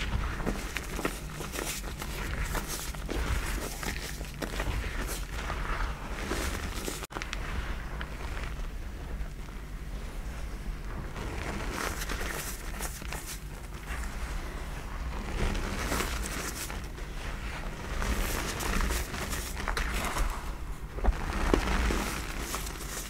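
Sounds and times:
chalk crunching in hands: 0.0s - 7.1s, 11.6s - 14.3s
steady low hum: 0.0s - 23.0s.

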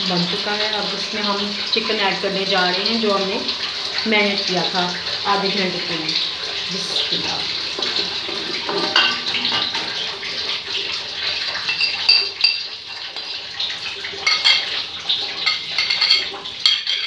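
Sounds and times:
spoon scraping ceramic dish: 15.4s - 17.0s.

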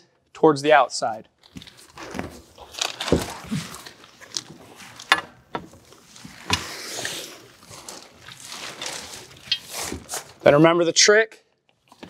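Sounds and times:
canvas rustling: 1.5s - 10.5s.

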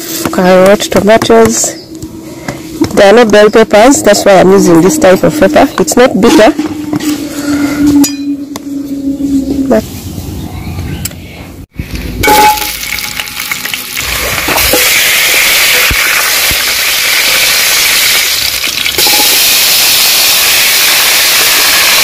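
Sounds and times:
onions sizzling in hot oil: 12.6s - 22.0s.

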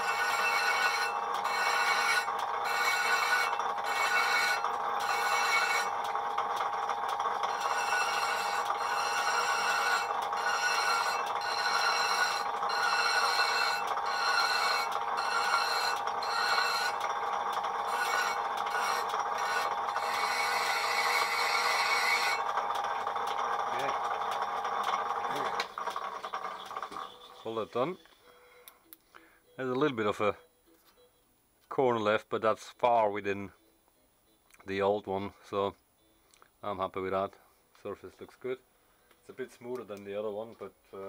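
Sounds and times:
lathe humming: 0.0s - 28.0s.

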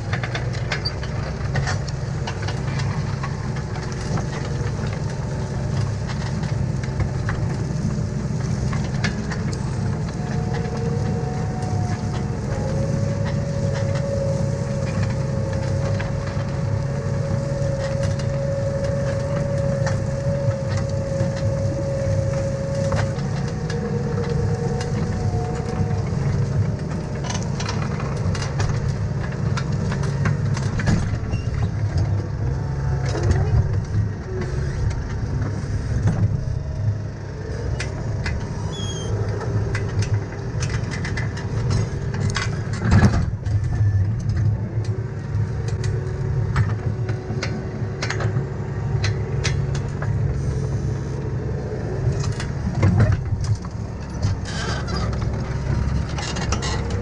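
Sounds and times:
tractor engine droning: 0.0s - 57.0s
thin steady whine: 1.5s - 57.0s.

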